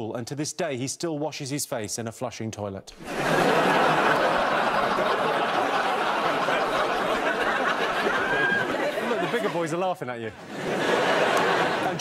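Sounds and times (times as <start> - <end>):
audience laughing: 3.0 - 12.0.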